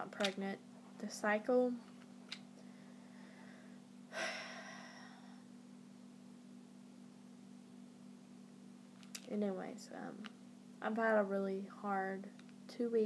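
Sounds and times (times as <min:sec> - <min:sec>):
low room hum: 0:00.0 - 0:13.0
woman sighing: 0:04.1 - 0:05.4.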